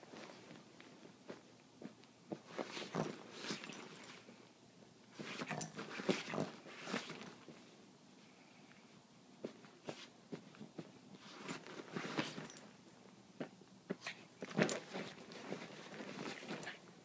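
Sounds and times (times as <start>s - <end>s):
puppy rustling with a comforter: 11.1s - 12.6s, 14.4s - 16.8s.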